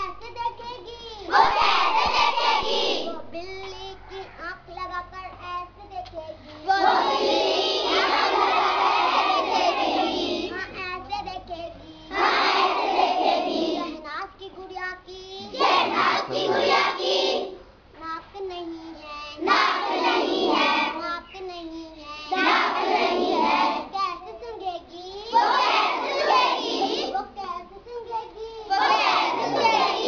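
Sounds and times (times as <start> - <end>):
chorus of girls singing: 1.3 - 3.4, 6.7 - 10.5, 12.1 - 14.0, 15.4 - 17.6, 19.4 - 21.0, 22.3 - 23.9, 25.3 - 27.2, 28.7 - 30.0.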